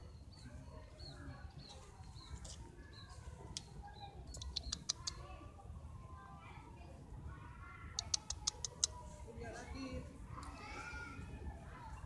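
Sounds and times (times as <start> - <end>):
small birds chirping: 0.0 - 6.3, 7.8 - 12.0
sharp clicks: 4.3 - 5.2, 8.0 - 9.0.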